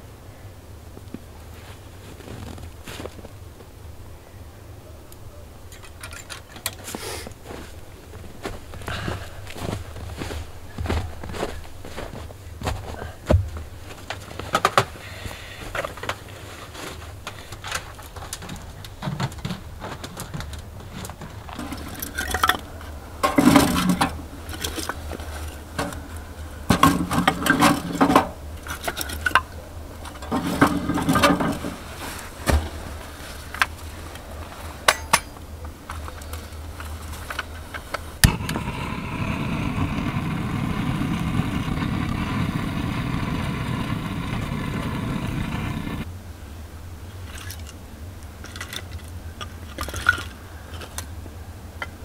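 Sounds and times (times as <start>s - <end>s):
firewood clunking into stove: 21.6s - 32.9s
gas torch flame hissing: 38.2s - 46.1s.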